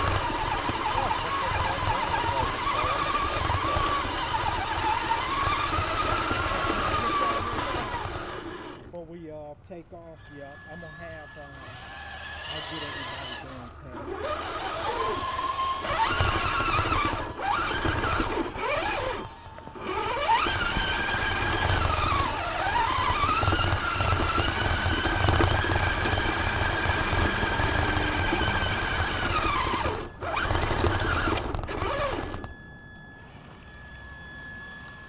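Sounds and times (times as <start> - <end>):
electric motor and gears whining: 0.0 - 35.0.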